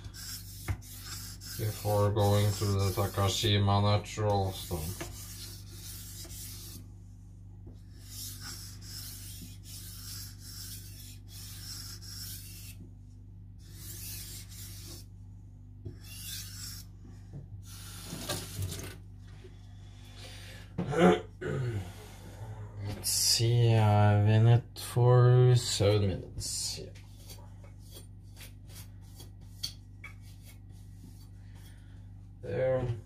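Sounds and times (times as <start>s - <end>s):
knife scraping on whetstone: 0.0s - 3.4s, 4.6s - 6.8s, 8.0s - 12.8s, 13.6s - 15.1s, 16.0s - 16.9s.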